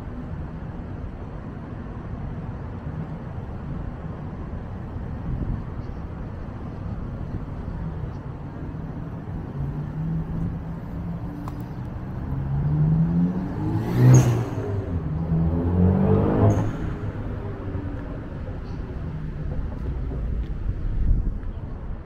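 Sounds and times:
steady low traffic rumble: 0.0 - 22.0
vehicles driving past: 0.0 - 22.0
engine accelerating: 9.6 - 20.5.

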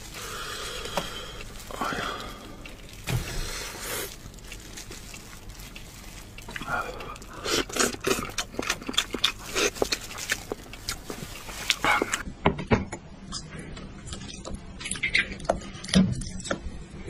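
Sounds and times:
wet chewing and smacking: 0.0 - 12.2.

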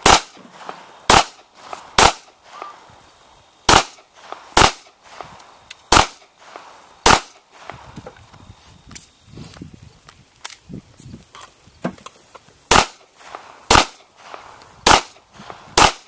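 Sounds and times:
pistol shots: 0.0 - 2.7, 3.7 - 5.0, 5.9 - 7.4, 12.7 - 13.1, 13.7 - 15.2, 15.8 - 16.0.

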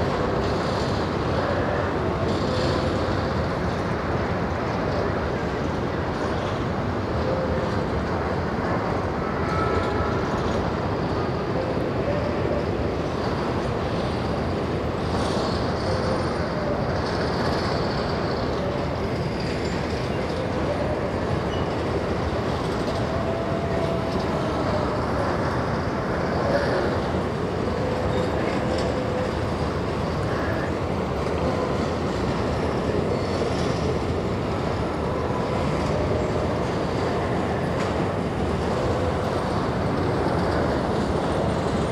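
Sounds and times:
train wheels rumbling on rail: 0.0 - 41.9
faint wheel squeals: 15.1 - 36.4.

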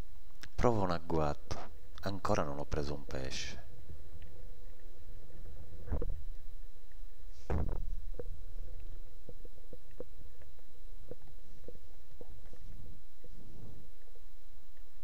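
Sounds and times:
underwater rumble of water: 5.3 - 14.3.

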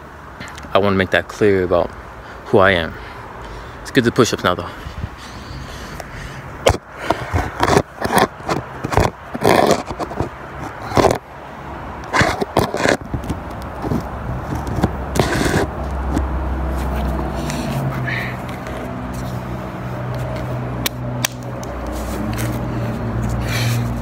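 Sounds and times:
phone handling scraping: 6.6 - 11.2, 12.0 - 19.4.

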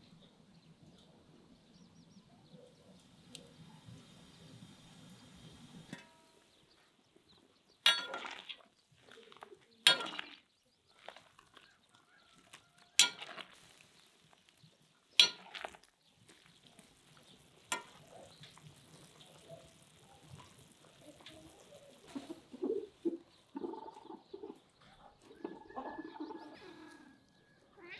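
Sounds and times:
metal utensil clanking on cauldron: 5.8 - 6.4, 7.8 - 8.6, 9.8 - 10.4, 13.0 - 13.8, 15.2 - 15.9, 17.5 - 21.4
faint stirring: 7.9 - 23.2.

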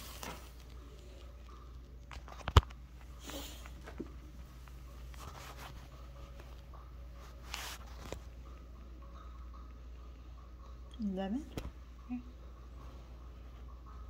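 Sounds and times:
low steady hum: 0.0 - 14.0
phone rubbing against fabric: 5.2 - 6.0.

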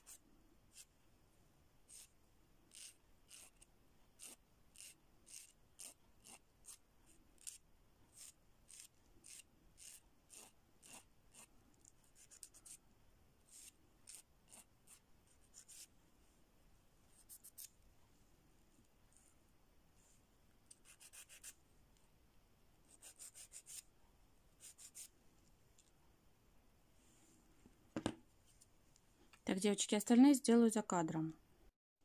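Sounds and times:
nail file rasping on fingernails: 1.9 - 6.8, 7.4 - 12.8, 13.5 - 15.9, 17.2 - 17.7, 20.7 - 21.6, 22.9 - 23.8, 24.6 - 25.1.

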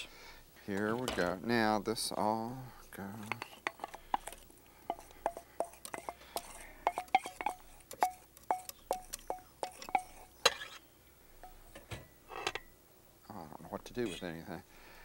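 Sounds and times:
metal bowl clinking: 3.2 - 10.8.

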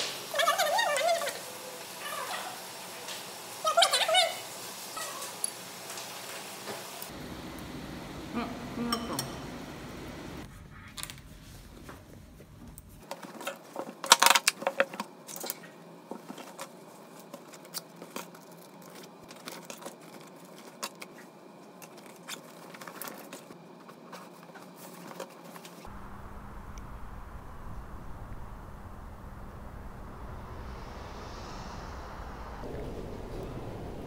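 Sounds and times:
outdoor traffic hum: 6.9 - 13.0, 25.8 - 34.0
items clattering: 12.6 - 25.8.

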